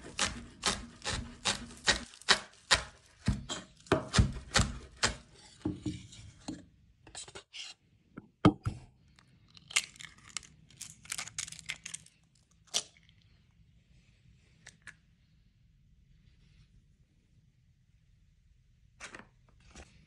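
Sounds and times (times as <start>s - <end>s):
knife chopping on wooden board: 0.0s - 6.0s
eggs cracking: 9.2s - 13.3s
eggshell crackling: 9.3s - 13.3s.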